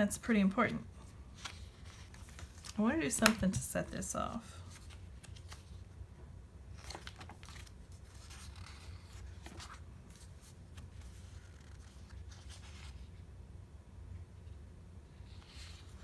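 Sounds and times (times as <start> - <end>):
low steady hum: 0.0 - 16.0
paper rustling: 1.3 - 3.7, 4.5 - 5.8, 6.7 - 13.1.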